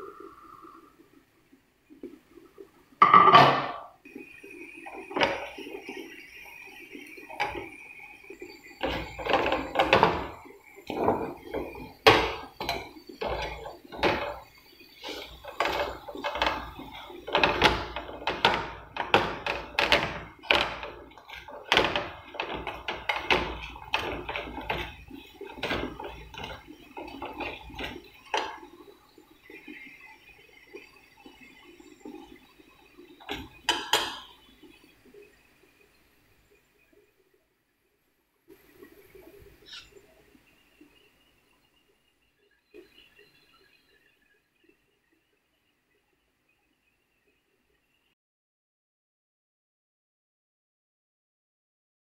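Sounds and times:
metal spoon scraping a pan: 0:08.8 - 0:14.4.

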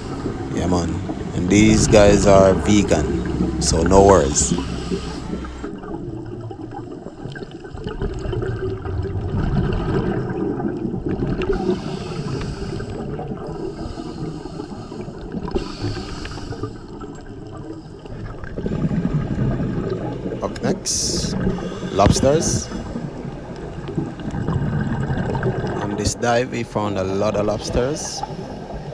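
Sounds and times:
underwater bubbling and gurgling: 0:00.0 - 0:28.9
regulator hissing inhalations: 0:04.5 - 0:05.7, 0:11.6 - 0:13.0, 0:13.6 - 0:16.9.

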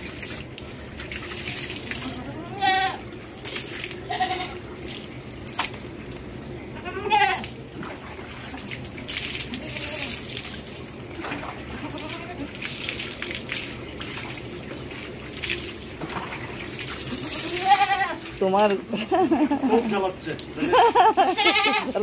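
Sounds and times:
water splashing on concrete: 0:00.0 - 0:22.0
goat bleating: 0:02.0 - 0:03.0, 0:04.0 - 0:04.6, 0:06.8 - 0:07.5, 0:09.5 - 0:10.2, 0:11.7 - 0:12.5, 0:17.1 - 0:18.2, 0:21.2 - 0:22.0.

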